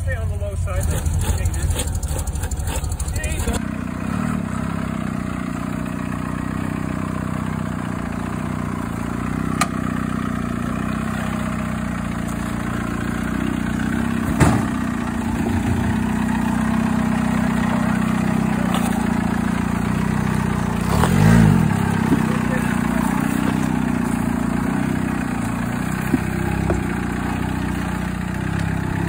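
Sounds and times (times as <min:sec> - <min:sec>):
diesel engine running at low revs: 0:00.0 - 0:29.0.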